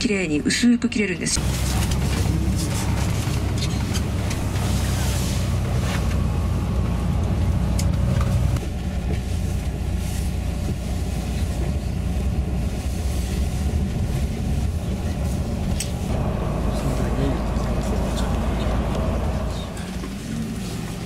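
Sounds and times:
bus engine and road noise: 0.0s - 21.0s.

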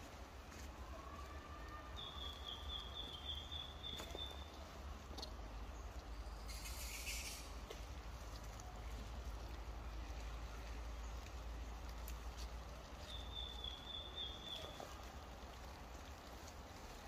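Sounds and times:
thin high bird or insect call: 5.2s - 7.6s, 13.0s - 15.0s.

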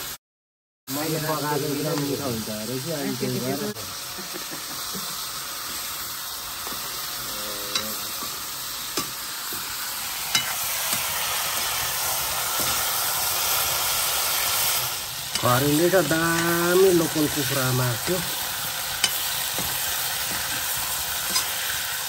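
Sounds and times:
chicken sizzling in wok: 0.9s - 22.0s
metal ladle clicking on pan: 10.3s - 11.1s, 19.0s - 20.5s, 21.2s - 21.6s.

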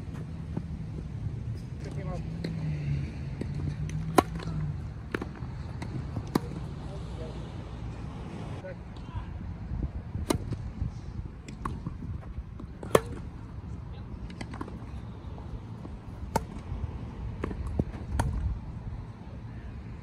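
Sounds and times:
tennis ball struck by rackets: 3.4s - 6.8s, 10.2s - 10.7s, 12.6s - 13.3s, 16.2s - 16.7s, 17.4s - 18.5s.

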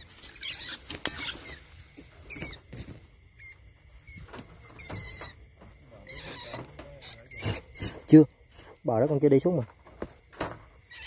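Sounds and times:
rat squealing: 0.0s - 2.8s, 3.4s - 8.3s
scuffling and rustling: 0.0s - 10.9s.

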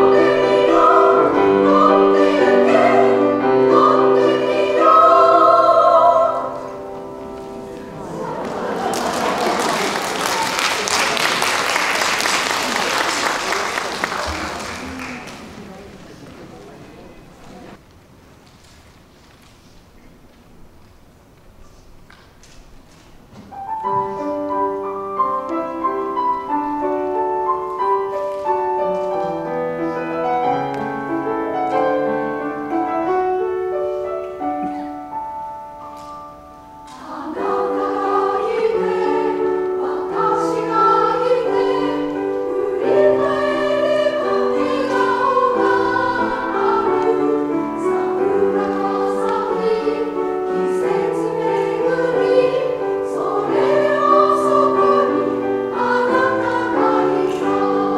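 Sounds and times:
women's choir singing: 0.0s - 10.6s, 36.7s - 57.9s
solo piano: 23.4s - 57.9s.

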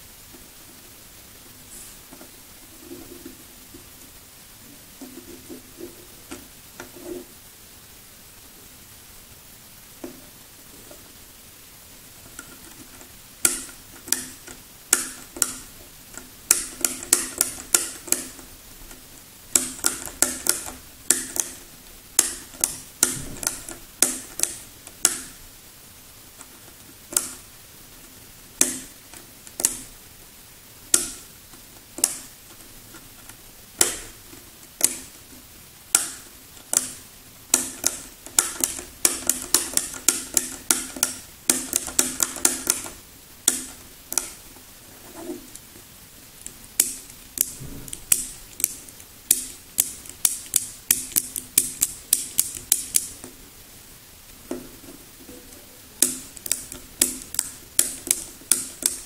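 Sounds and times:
plastic mechanism clicking: 12.3s - 25.4s, 33.2s - 35.2s, 35.9s - 44.4s, 46.4s - 53.4s, 56.0s - 59.0s.

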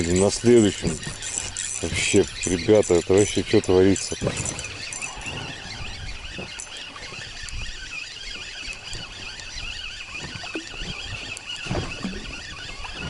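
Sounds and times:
fishing reel squeaky whir: 0.0s - 13.0s
wind rumbling on microphone: 0.0s - 13.0s.

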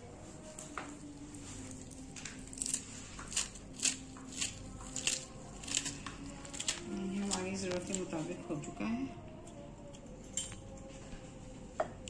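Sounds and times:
knife snipping greens: 2.2s - 8.1s.

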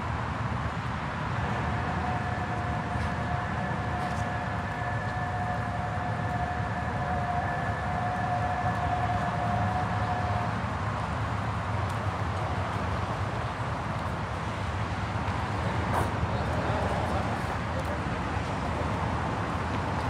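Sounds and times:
vehicle road noise: 0.0s - 20.0s.

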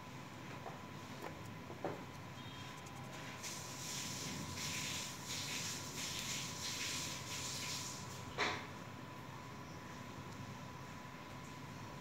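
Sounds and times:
faint high whine: 2.1s - 3.6s.

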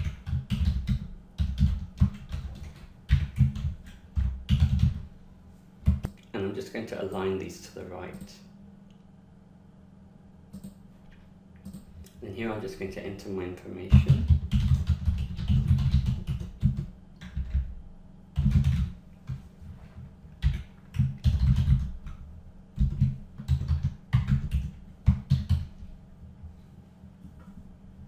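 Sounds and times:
keyboard typing: 0.0s - 5.0s, 11.6s - 11.9s, 13.9s - 17.7s, 18.4s - 19.4s, 20.4s - 22.2s, 22.8s - 25.7s.

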